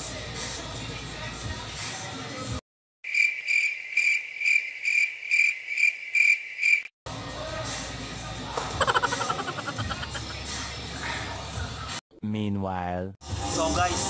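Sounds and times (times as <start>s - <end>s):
cricket chirping: 3.0s - 6.9s
background music: 7.1s - 12.0s.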